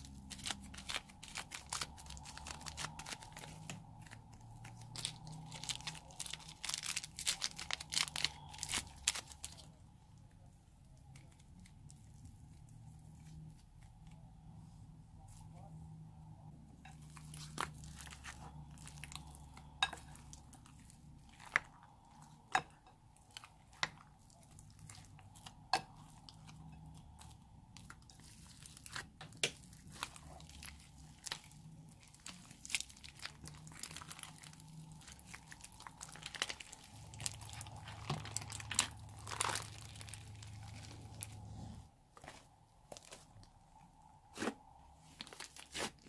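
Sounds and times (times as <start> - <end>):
slime crackling and popping: 0.0 - 9.7, 17.2 - 41.4.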